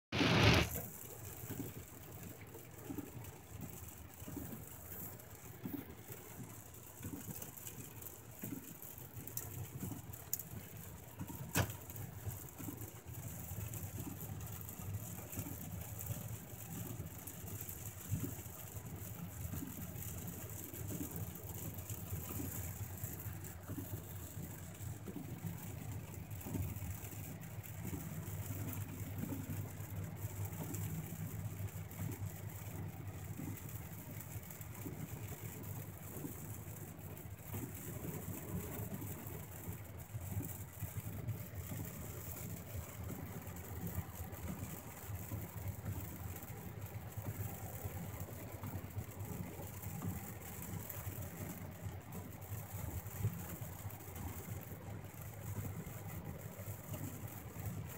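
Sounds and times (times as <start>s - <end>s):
car engine and road rumble: 0.0s - 57.9s
tyres hissing on wet road: 0.1s - 4.4s.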